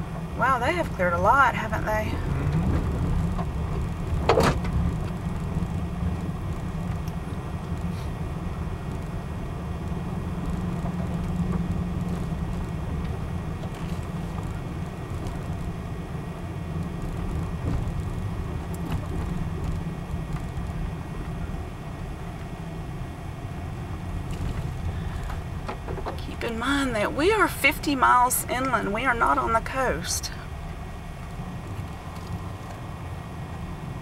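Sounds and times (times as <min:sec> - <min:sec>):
car engine and tyre rumble: 0:00.0 - 0:34.0.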